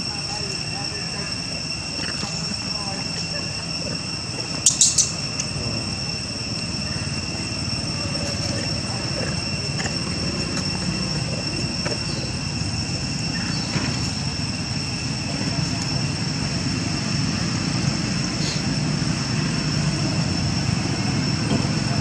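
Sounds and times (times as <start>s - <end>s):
sharp high squeaks: 0.0s - 17.4s
insects droning in trees: 0.0s - 22.0s.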